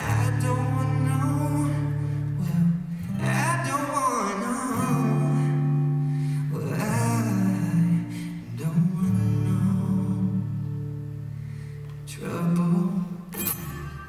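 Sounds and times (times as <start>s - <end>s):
man singing into a microphone: 0.0s - 10.8s, 12.0s - 14.0s
acoustic guitar strumming: 0.0s - 14.0s.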